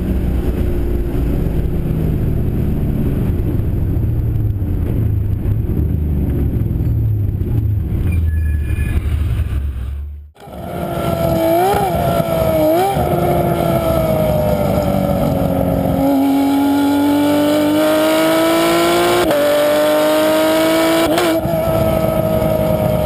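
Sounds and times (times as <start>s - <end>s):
race car engine revving: 10.4s - 23.0s.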